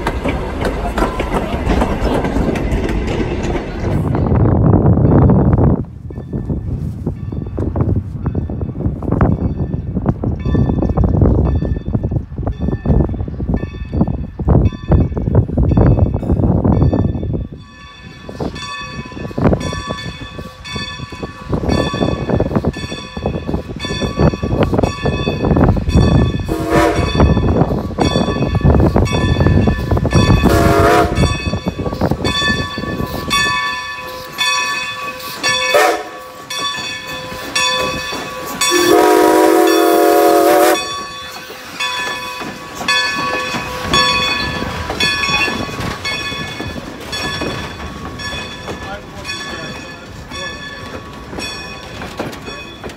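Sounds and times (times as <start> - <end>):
low rumble of moving train: 0.0 - 52.9
locomotive bell ringing: 4.3 - 52.9
steam whistle blasts: 26.5 - 27.2, 30.4 - 31.3, 35.7 - 36.2, 38.7 - 41.0.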